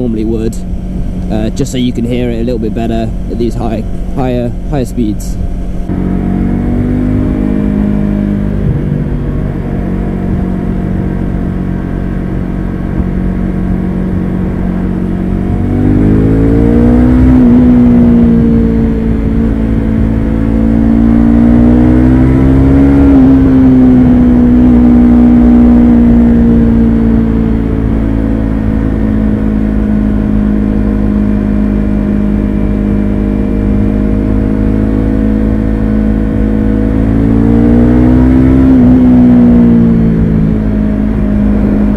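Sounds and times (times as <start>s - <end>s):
motorcycle engine revving: 0.0s - 41.9s.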